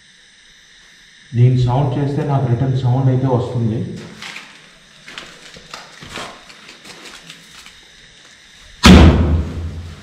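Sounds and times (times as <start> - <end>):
sudden loud bang: 8.8 - 10.0.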